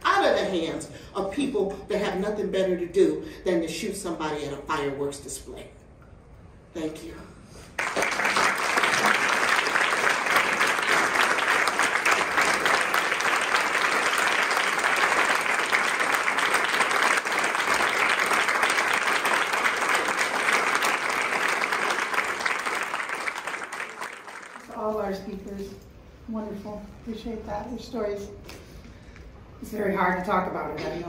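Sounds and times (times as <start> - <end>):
small group applauding: 7.8 - 24.9.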